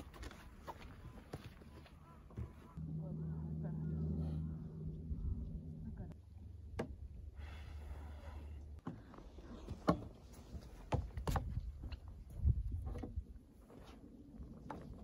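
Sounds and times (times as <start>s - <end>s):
low rumble: 2.7s - 8.8s.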